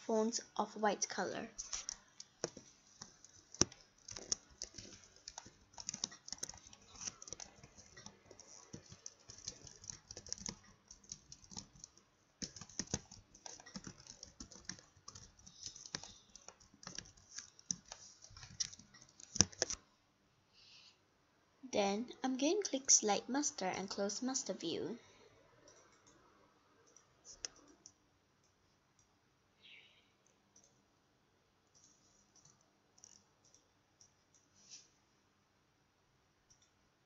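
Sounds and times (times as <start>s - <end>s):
computer keyboard typing: 1.6s - 19.8s, 25.6s - 26.2s, 26.8s - 29.1s, 30.5s - 30.8s, 31.6s - 34.5s, 36.5s - 36.8s.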